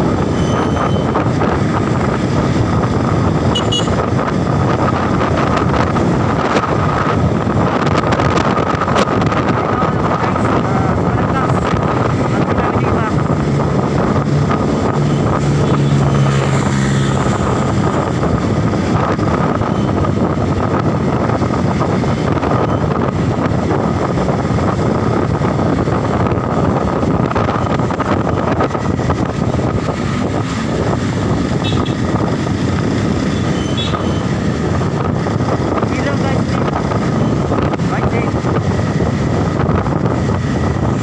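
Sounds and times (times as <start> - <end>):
wind and road noise: 0.0 - 41.0.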